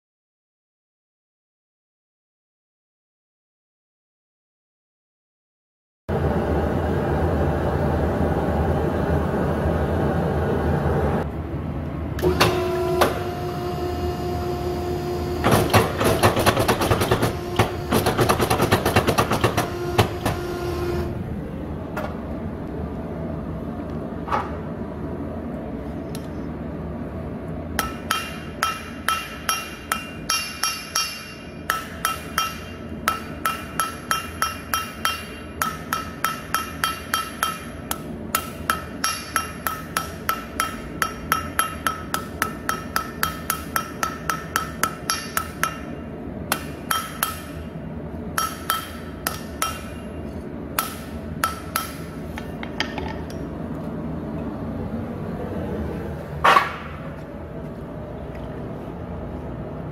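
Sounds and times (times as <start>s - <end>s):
steady low hum: 6.1s - 59.9s
hammer blows on steel anvil: 27.8s - 47.7s, 48.4s - 50.2s.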